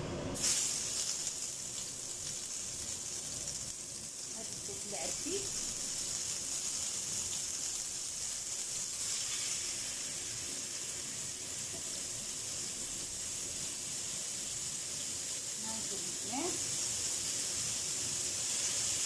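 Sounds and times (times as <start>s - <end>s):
fish frying in hot oil: 0.4s - 19.0s.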